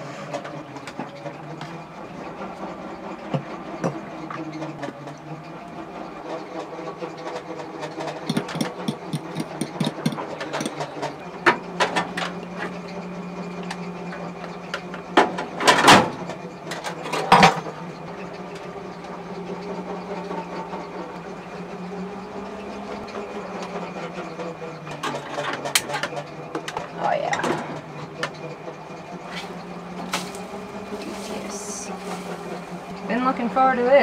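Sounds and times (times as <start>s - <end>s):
steady low hum: 8.1s - 24.8s, 26.4s - 34.0s
quick clicks and taps: 8.3s - 10.9s.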